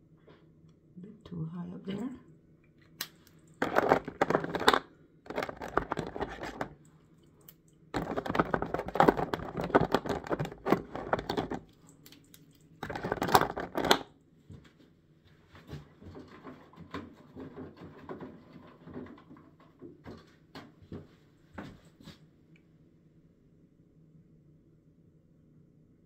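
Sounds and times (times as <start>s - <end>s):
rustling handling noise: 3.4s - 7.1s, 8.0s - 14.7s.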